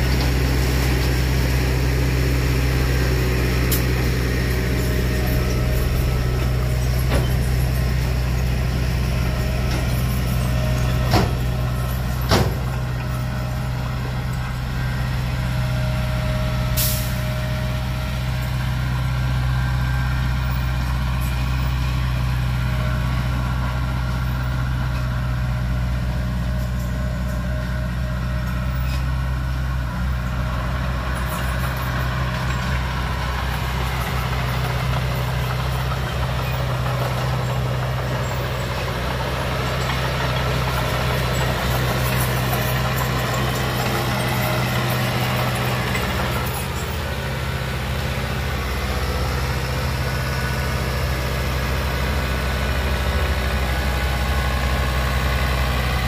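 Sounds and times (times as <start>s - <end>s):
diesel machinery engine drone: 0.0s - 56.0s
air brake hiss: 16.8s - 17.3s.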